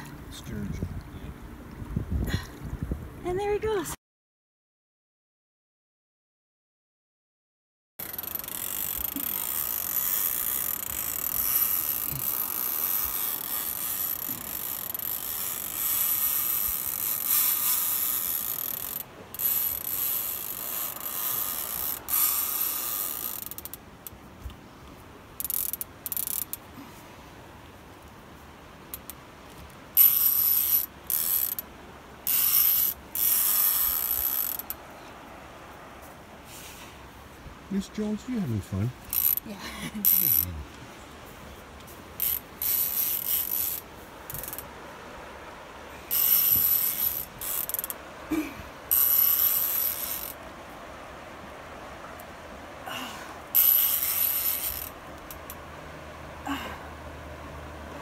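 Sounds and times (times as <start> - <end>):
fishing reel drag buzzing: 8.0 - 24.2, 25.4 - 26.6, 29.9 - 34.8, 39.0 - 40.5, 42.2 - 44.7, 46.0 - 48.0, 48.9 - 50.4, 53.5 - 55.6.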